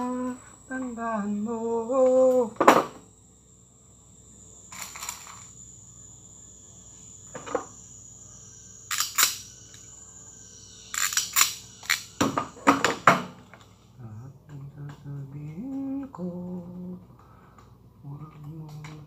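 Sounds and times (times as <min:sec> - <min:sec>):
faint high-pitched whine: 0:00.0 - 0:19.0
tools clicking and scraping: 0:08.9 - 0:09.9, 0:10.9 - 0:12.1.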